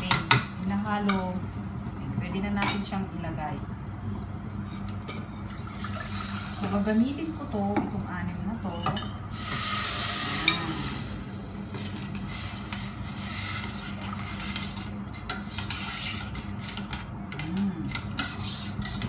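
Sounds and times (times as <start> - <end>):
rice sizzling in a pan: 0.0 - 16.8
utensil scraping a pan: 12.0 - 17.0, 17.9 - 19.0.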